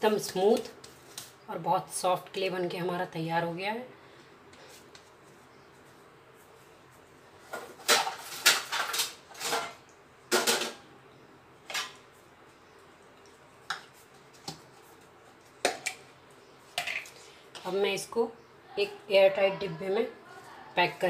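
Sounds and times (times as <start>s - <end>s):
dishes and utensils clattering: 7.5s - 10.8s.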